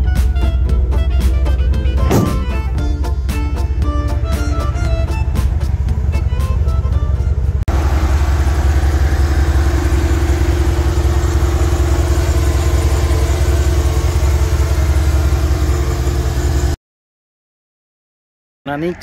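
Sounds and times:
background music: 0:00.0 - 0:07.6
pickup engine idling: 0:00.3 - 0:16.8.

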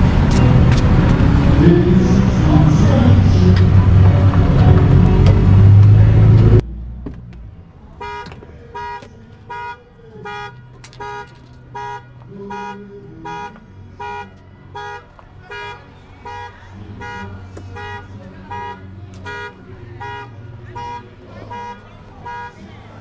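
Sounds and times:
car alarm horn honking: 0:08.0 - 0:22.6.

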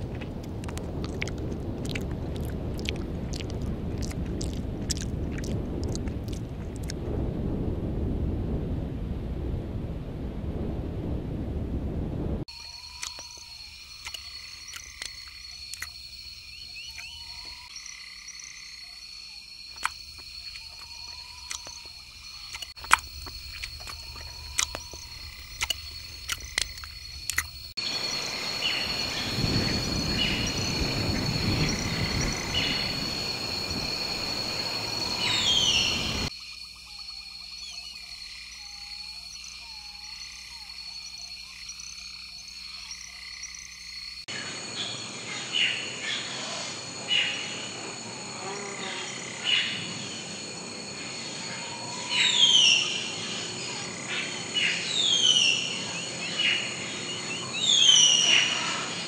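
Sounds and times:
frogs croaking: 0:00.0 - 0:07.0, 0:12.5 - 0:59.0
high insect drone: 0:12.5 - 0:59.0
short chirping calls: 0:23.5 - 0:36.3
rushing noise: 0:27.8 - 0:36.3.

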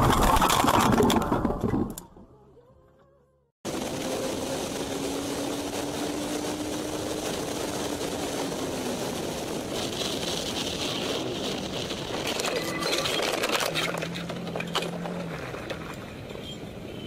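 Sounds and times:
motorcycle engine drone: 0:03.7 - 0:17.0
wind rush: 0:03.7 - 0:17.0.

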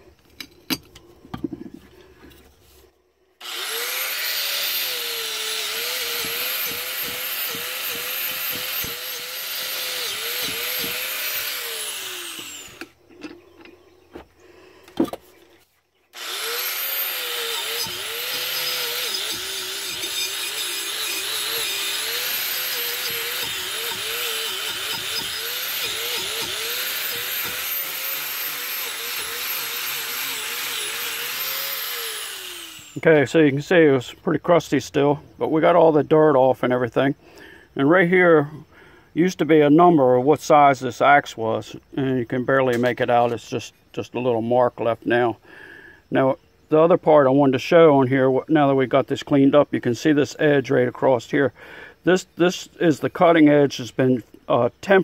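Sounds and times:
angle grinder wire brush scouring metal: 0:16.2 - 0:33.1.

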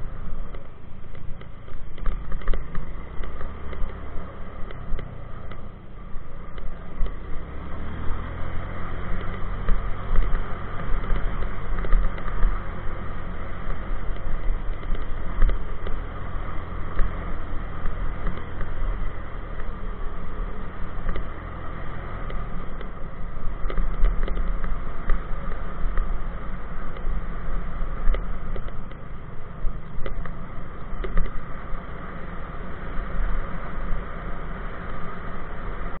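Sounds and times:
motorcycle engine rumbling: 0:00.0 - 0:36.0
sharp clicks and rattles: 0:00.4 - 0:05.7, 0:09.1 - 0:16.1, 0:16.7 - 0:21.4, 0:22.2 - 0:26.2, 0:28.0 - 0:31.5.

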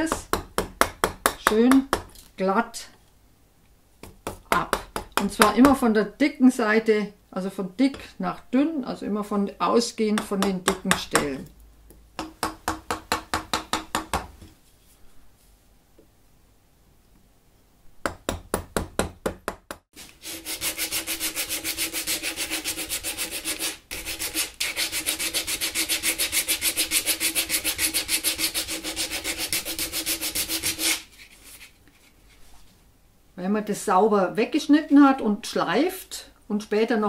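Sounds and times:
hand sanding wood: 0:20.0 - 0:31.7.

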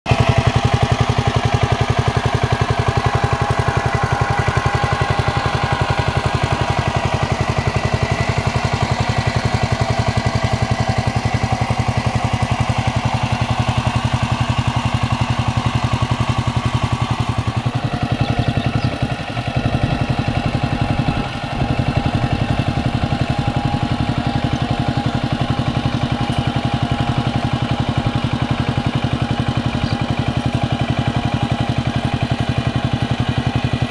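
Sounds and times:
diesel tiller engine chugging: 0:00.1 - 0:33.9.

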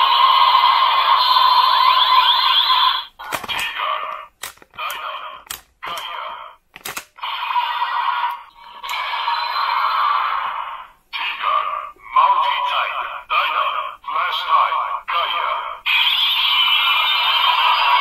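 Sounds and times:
toy speaker electronic effects: 0:00.0 - 0:06.3, 0:07.2 - 0:18.0
plastic clicks: 0:03.2 - 0:06.1, 0:06.7 - 0:07.2.

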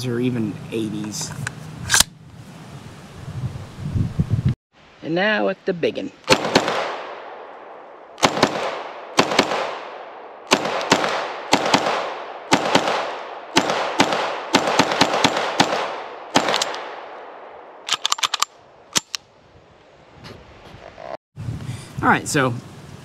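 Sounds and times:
pistol shots with echo: 0:06.3 - 0:17.5.

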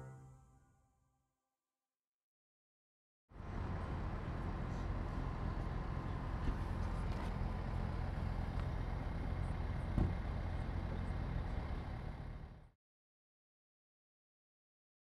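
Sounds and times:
traffic rumble: 0:03.3 - 0:12.7.

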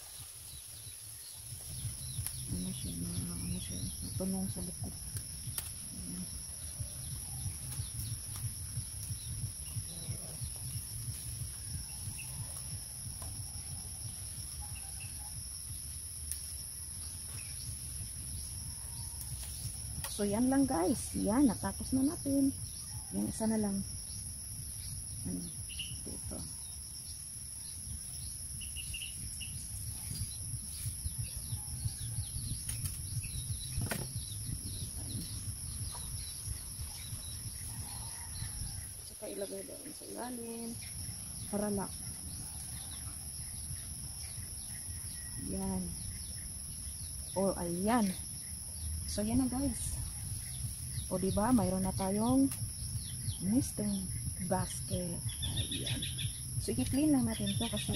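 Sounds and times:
birds chirping: 0:00.0 - 0:57.9
high-pitched insect drone: 0:00.0 - 0:57.9
low wind rumble: 0:00.0 - 0:57.9
low rumble: 0:01.4 - 0:14.8, 0:27.6 - 0:39.0.

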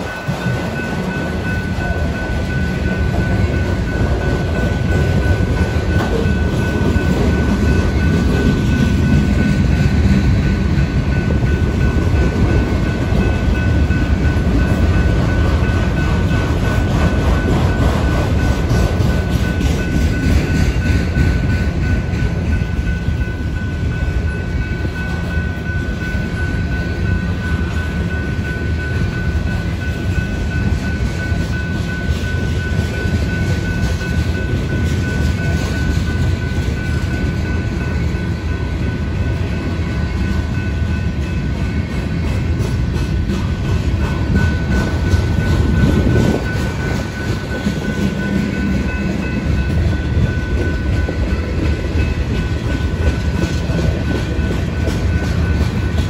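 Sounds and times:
crossing warning bell: 0:00.0 - 0:56.0
train wheels rumbling on rails: 0:00.0 - 0:56.0.

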